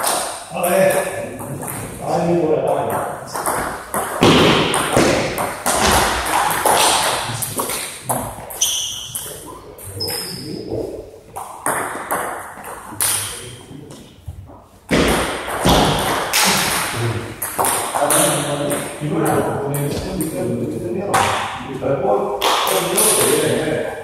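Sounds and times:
table tennis ball hits: 2.9 - 9.3, 11.4 - 13.5, 14.9 - 19.0.

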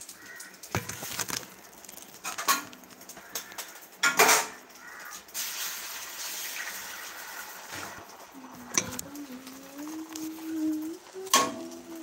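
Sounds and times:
steady hiss: 0.0 - 12.0
egg knocking against pan: 0.2 - 5.1
kitchen clatter: 0.6 - 6.8, 7.6 - 12.0.

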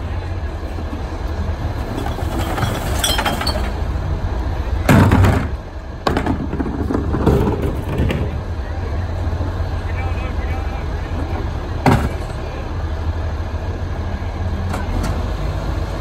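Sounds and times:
garbage truck engine running: 0.0 - 16.0
glass clinking and breaking: 2.4 - 3.8.

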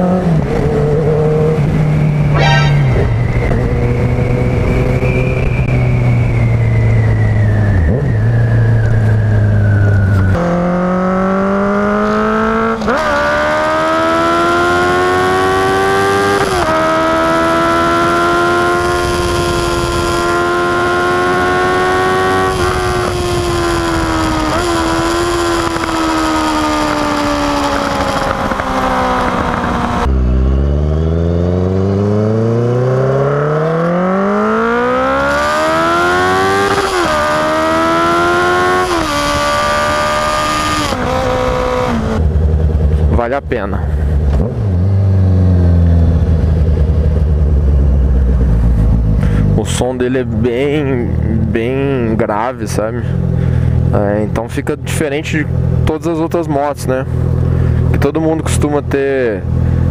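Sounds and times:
motorcycle engine running: 22.7 - 32.6, 36.4 - 49.6, 53.0 - 54.0, 57.1 - 58.0
exhaust crackle: 45.2 - 49.6.

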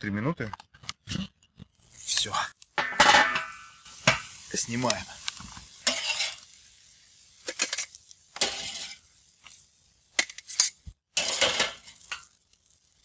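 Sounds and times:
metal tongs clinking on grill: 5.8 - 6.6, 7.4 - 12.5.

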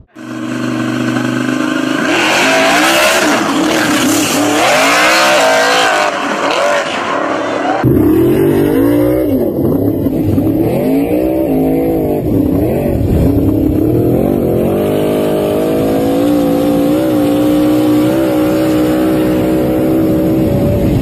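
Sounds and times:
racing car engines revving: 0.0 - 21.0.

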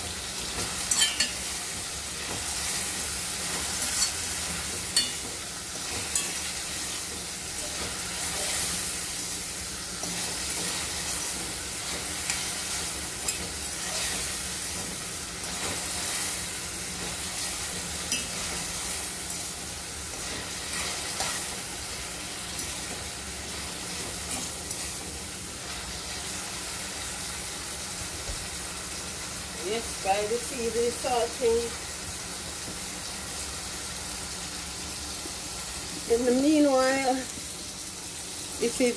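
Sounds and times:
vegetables sizzling in oil: 0.0 - 38.9
fork clinking against pot: 0.9 - 1.4, 5.0 - 5.3.

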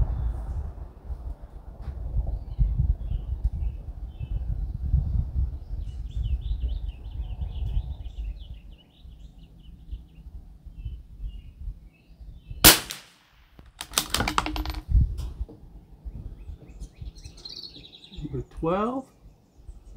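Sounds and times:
rifle shot: 12.6 - 14.8
rifle bolt metallic clicks: 13.7 - 14.8
birds chirping: 15.8 - 19.9.

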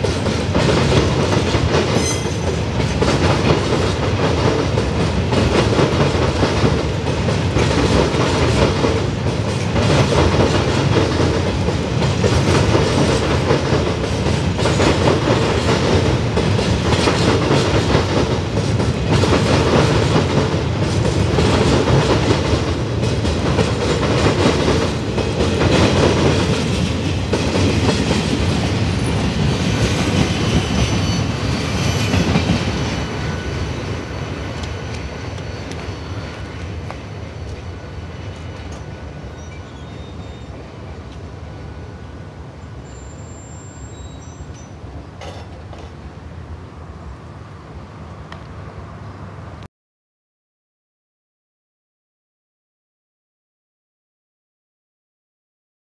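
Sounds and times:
clickety-clack over rail joints: 0.0 - 33.2, 34.4 - 40.0, 44.2 - 46.2
train wheels rumbling on rails: 0.0 - 49.7.

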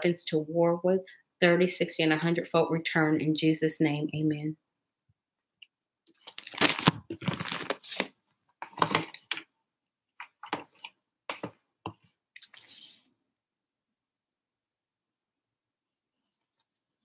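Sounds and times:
crinkling and scraping: 6.1 - 9.5, 10.2 - 13.0
rustling and handling noises: 6.1 - 9.5, 10.2 - 13.0.

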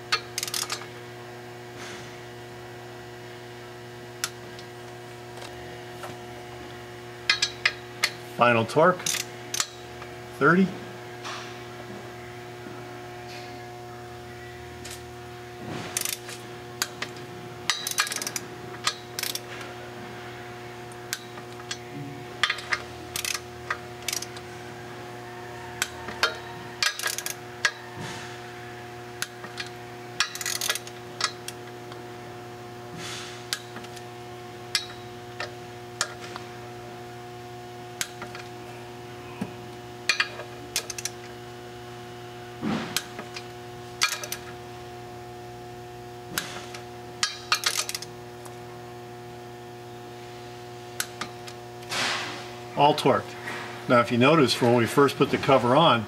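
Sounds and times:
steady hum: 0.0 - 56.0
torque wrench ratcheting and clicking: 0.1 - 0.8, 7.3 - 8.2, 9.0 - 9.8, 16.0 - 19.5, 22.4 - 24.4, 25.8 - 27.8, 29.2 - 31.7, 40.1 - 41.3, 44.0 - 44.5, 47.2 - 48.1.

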